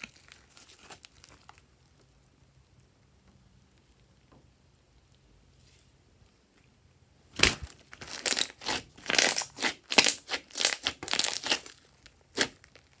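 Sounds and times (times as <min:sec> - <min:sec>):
slime squishing and popping: 0:07.4 - 0:13.0.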